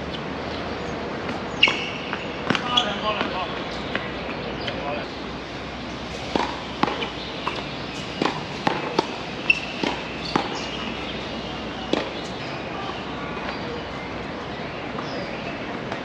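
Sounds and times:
tennis ball pops: 0:06.3 - 0:07.6, 0:08.2 - 0:10.7, 0:11.9 - 0:12.2.

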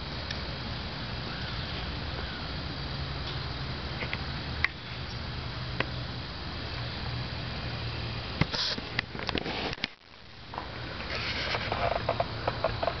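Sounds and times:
steady low hum: 0:00.0 - 0:13.0
microphone handling rubbing: 0:08.4 - 0:13.0
rustling: 0:08.5 - 0:13.0.

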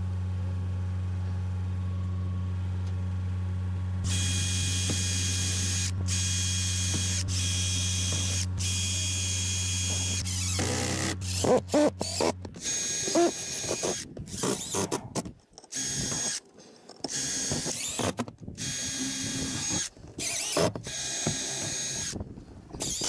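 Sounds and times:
power driver driving screws: 0:04.1 - 0:22.2, 0:22.8 - 0:23.0.

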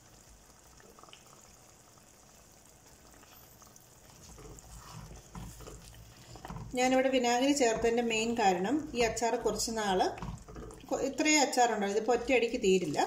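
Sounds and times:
pickle bubbling in a pan: 0:00.0 - 0:13.0
wooden spoon stirring and scraping: 0:03.2 - 0:13.0.

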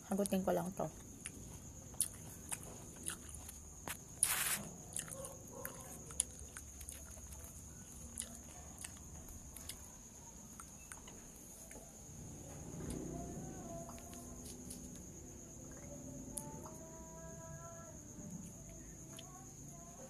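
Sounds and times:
faint steady hiss: 0:00.0 - 0:20.0
tearing rustle: 0:04.2 - 0:04.6.

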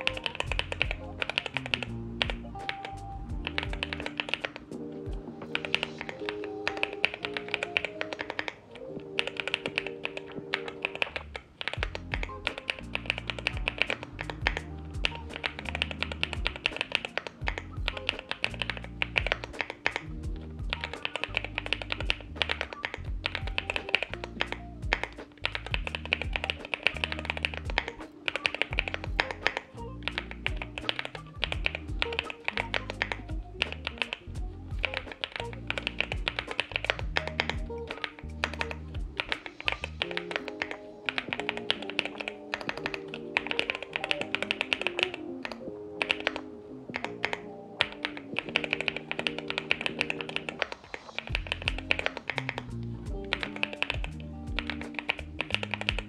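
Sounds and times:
background music with bass: 0:00.0 - 0:06.8, 0:11.1 - 0:41.7, 0:51.3 - 0:56.0
mechanical keyboard typing: 0:00.0 - 0:56.0.

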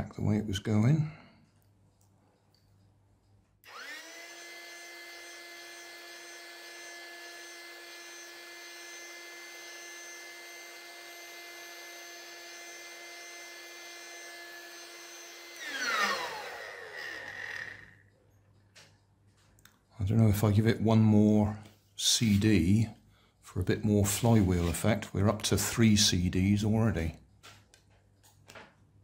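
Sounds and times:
electric air pump whining: 0:03.6 - 0:18.1.

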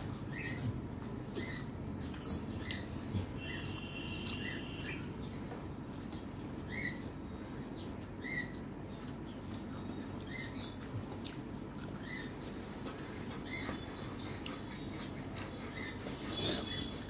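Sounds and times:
low background noise: 0:00.0 - 0:17.0
chewing: 0:01.4 - 0:05.1, 0:05.8 - 0:06.9, 0:08.4 - 0:17.0.

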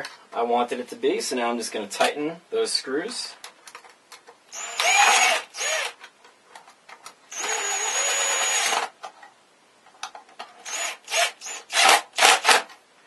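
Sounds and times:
cordless drill driving screws: 0:04.5 - 0:06.0, 0:07.3 - 0:08.9, 0:10.6 - 0:12.7.

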